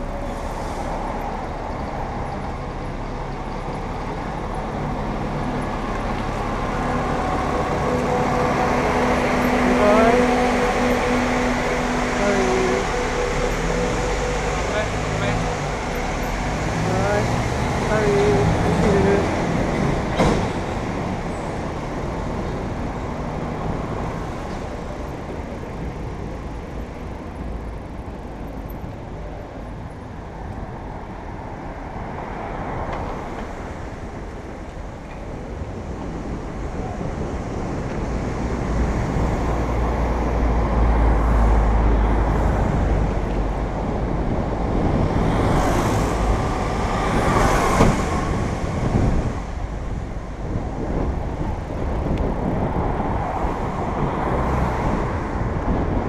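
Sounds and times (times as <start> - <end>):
road traffic passing: 0.0 - 56.0
wind rumble on microphone: 0.0 - 56.0.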